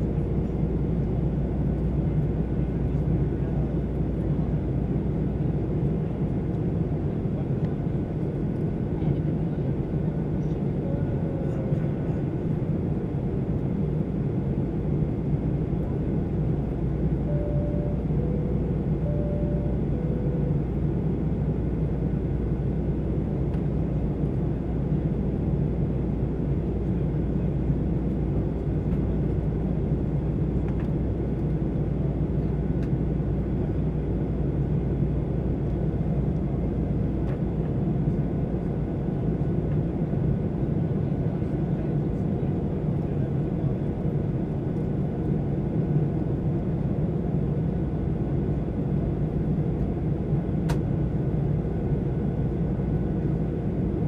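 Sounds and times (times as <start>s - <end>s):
airplane cabin roar: 0.0s - 54.0s
faint steady whine: 13.3s - 31.8s.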